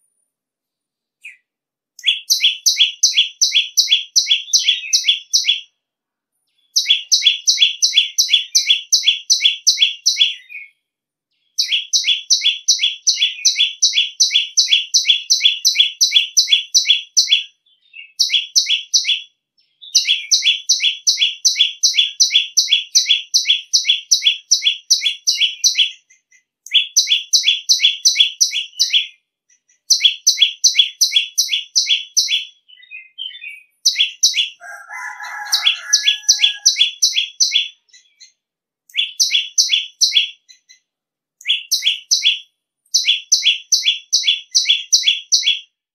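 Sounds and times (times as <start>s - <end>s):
bird shrill high call: 34.0s - 37.2s.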